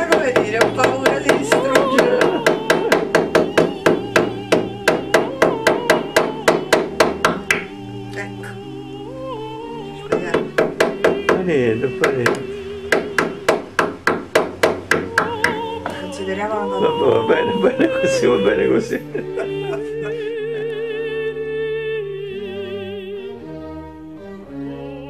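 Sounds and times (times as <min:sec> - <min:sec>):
hammer tapping nails: 0:00.0 - 0:07.7, 0:10.1 - 0:11.4, 0:12.0 - 0:16.0
music with singing voice: 0:00.0 - 0:25.0.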